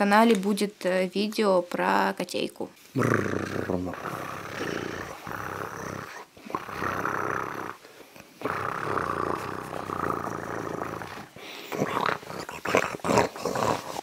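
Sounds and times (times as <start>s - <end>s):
person making snore-like noises: 2.9s - 14.0s.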